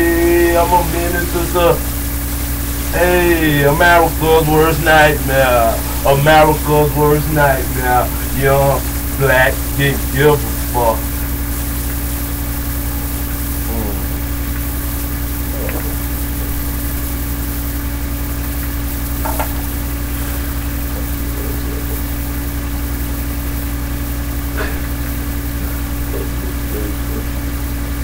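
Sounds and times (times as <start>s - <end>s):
low hum with hiss: 0.0s - 28.0s.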